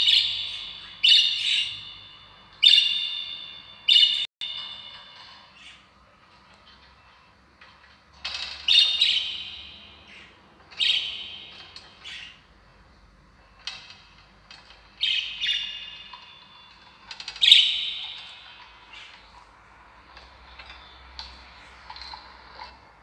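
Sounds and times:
harsh high bird chirps: 0.0 - 6.0, 8.4 - 12.6, 14.8 - 19.4.

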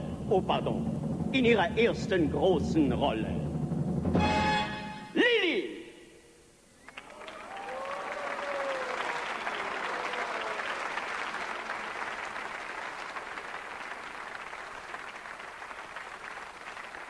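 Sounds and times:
studio audience applauding: 6.8 - 17.0.

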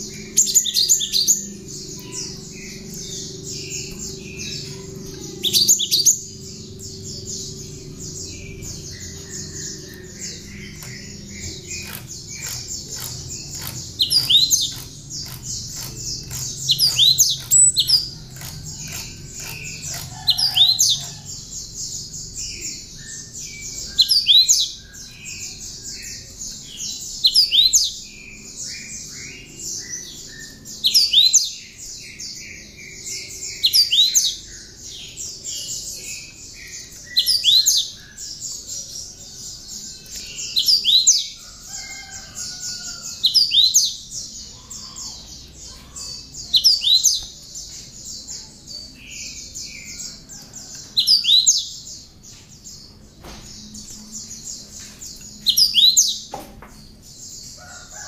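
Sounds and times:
bird singing sharp high phrases: 0.0 - 21.2
rapid high bird trill: 9.1 - 21.3.

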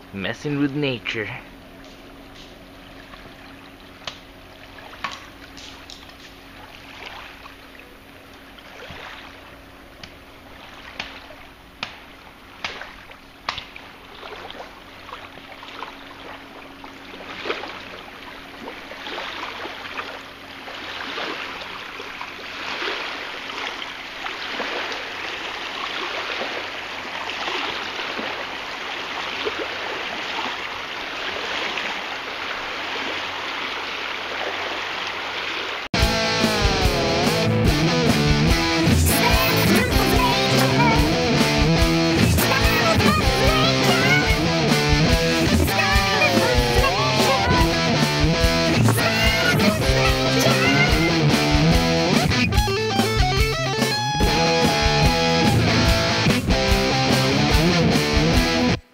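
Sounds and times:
small waves lapping on pebbles: 1.8 - 35.9.

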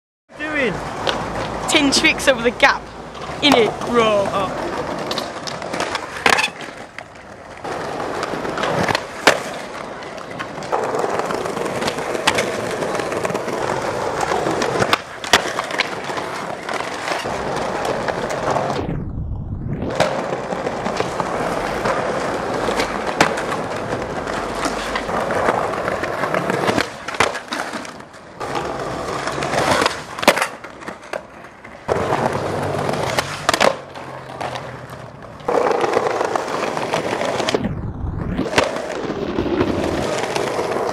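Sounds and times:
skateboard wheels rolling on concrete: 0.3 - 40.9
skateboard tail pops: 19.8 - 22.0, 22.7 - 23.8, 29.5 - 31.3, 32.9 - 34.6, 38.4 - 40.9
skateboard landing clacks: 22.6 - 31.3, 31.9 - 37.6.

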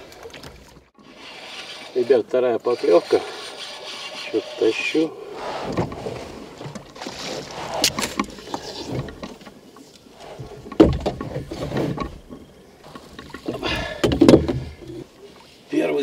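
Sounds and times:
rubbing and knocking: 1.1 - 9.4
clicks and knocks in a rowboat: 5.6 - 15.5.

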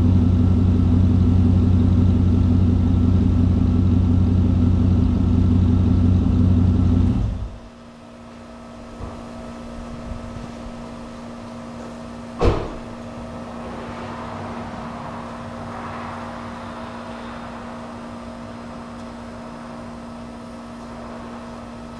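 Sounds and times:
car engine idling: 0.0 - 21.9
sharp thump: 12.4 - 13.2.

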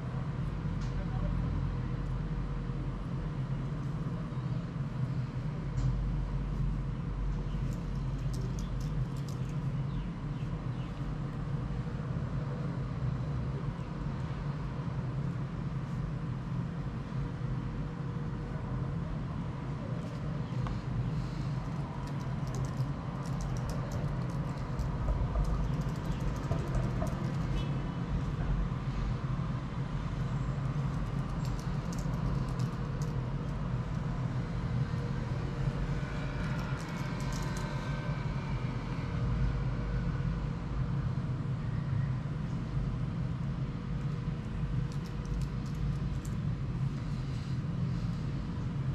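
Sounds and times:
low background hum: 0.0 - 48.9.

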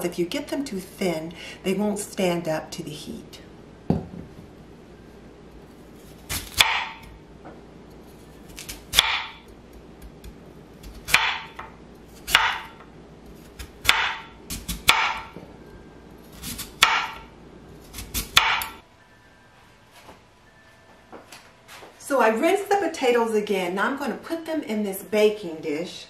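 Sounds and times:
knife knocking on cutting board: 3.9 - 4.3
knife slicing sweet potato: 6.0 - 7.1, 8.5 - 15.3, 16.3 - 17.2, 17.8 - 18.8.

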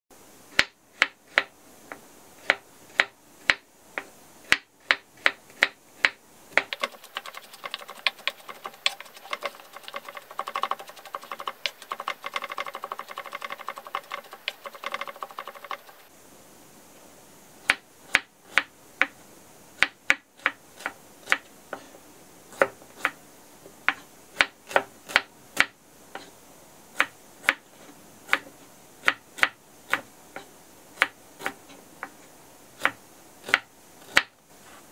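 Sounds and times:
knife chopping on wooden board: 0.5 - 1.5, 2.4 - 15.9, 22.5 - 23.2, 23.9 - 25.7, 28.3 - 32.1.

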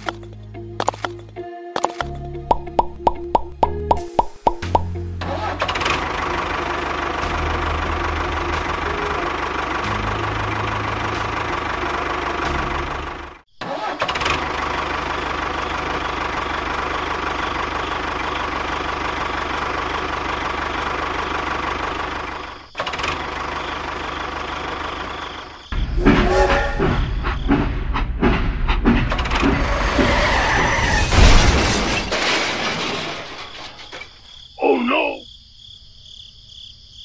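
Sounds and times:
tractor engine idling: 4.7 - 13.4, 14.2 - 26.0.

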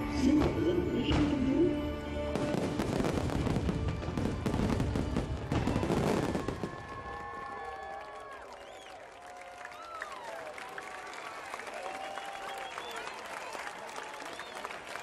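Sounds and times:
show music: 0.0 - 5.7
fireworks bursts and crackling: 2.3 - 7.3.

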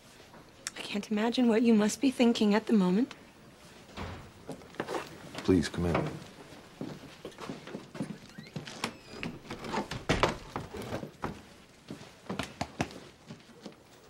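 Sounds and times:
footsteps on wooden floor: 3.6 - 13.8
heavy thump: 4.0 - 4.6.

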